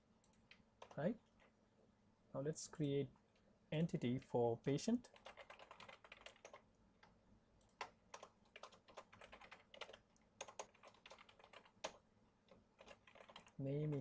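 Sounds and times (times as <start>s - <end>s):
faint keyboard typing: 0.2s - 1.6s, 5.0s - 14.0s.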